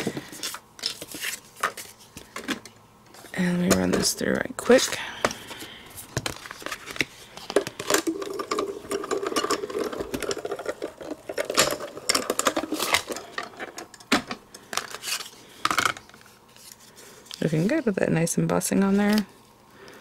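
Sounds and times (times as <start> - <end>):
plastic plates clacking: 6.2 - 16.2.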